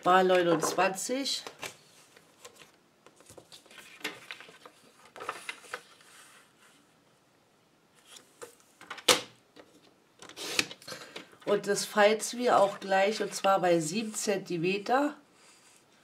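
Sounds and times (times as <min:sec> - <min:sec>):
cardstock shuffling: 0:01.8 - 0:06.8.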